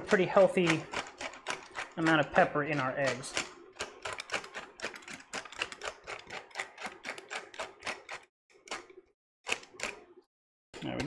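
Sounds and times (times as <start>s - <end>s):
pepper mill grinding: 0.0s - 8.3s.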